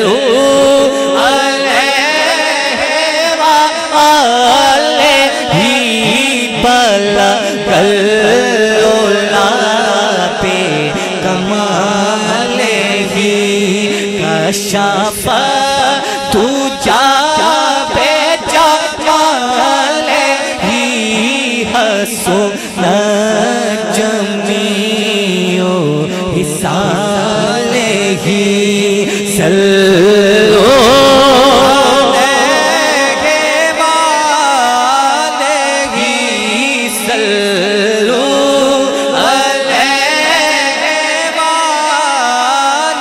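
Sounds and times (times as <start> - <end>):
man singing into a microphone: 0.0 - 43.0.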